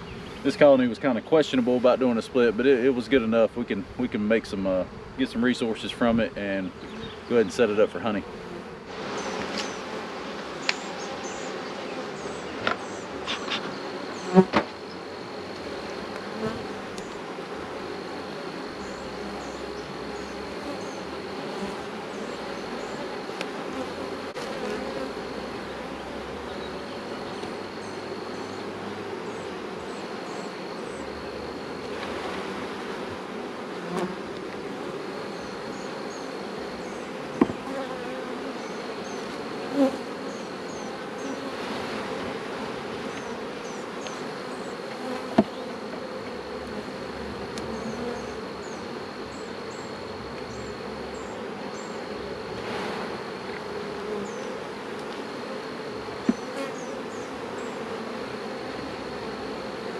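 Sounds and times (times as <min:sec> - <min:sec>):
honeybees buzzing: 0:00.0 - 0:59.9
hive tool knocking on wooden frames: 0:14.4 - 0:14.8, 0:37.3 - 0:38.0, 0:44.8 - 0:46.4, 0:56.1 - 0:57.3.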